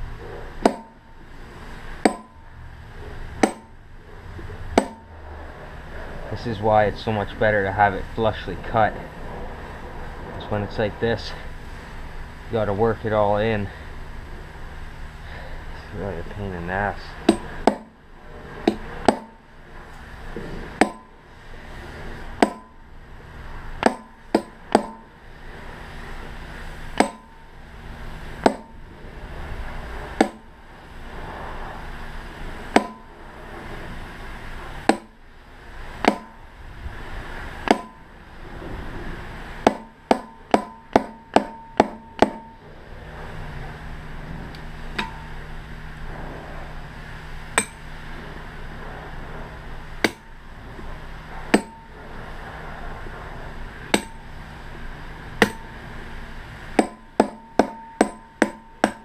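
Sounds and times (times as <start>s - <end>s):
hammer striking steel punch: 0.6s - 1.1s, 2.0s - 2.4s, 3.4s - 3.8s, 4.7s - 5.1s, 17.2s - 18.0s, 18.6s - 19.4s, 20.8s - 21.1s, 22.4s - 22.8s, 23.8s - 25.1s, 27.0s - 27.4s, 28.4s - 28.8s, 30.2s - 30.5s, 32.7s - 33.1s, 34.9s - 35.2s, 36.0s - 36.4s, 37.6s - 38.0s, 39.6s - 42.6s, 45.0s - 45.3s, 47.6s - 47.9s, 50.0s - 50.3s, 51.5s - 52.0s, 53.9s - 54.3s, 55.4s - 55.7s, 56.8s - 59.0s.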